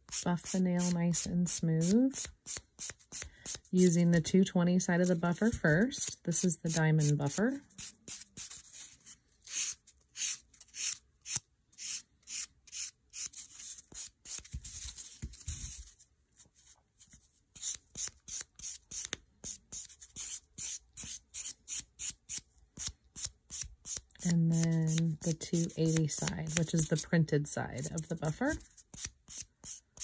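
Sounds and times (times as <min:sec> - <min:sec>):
nail buffer scratching nail: 0:20.2 - 0:27.0.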